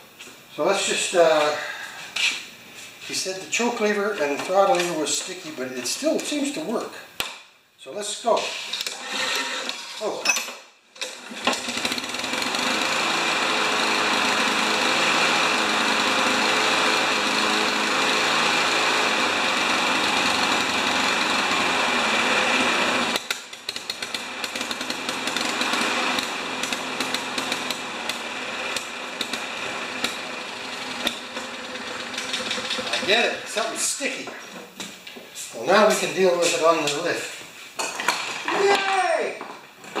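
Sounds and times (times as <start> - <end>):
lawn mower engine running: 11.2 - 33.8
engine crackling: 11.6 - 33.6.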